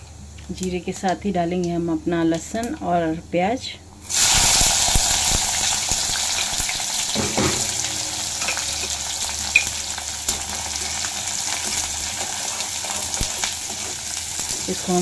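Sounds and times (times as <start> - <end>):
onions sizzling in hot oil: 4.0 - 15.0.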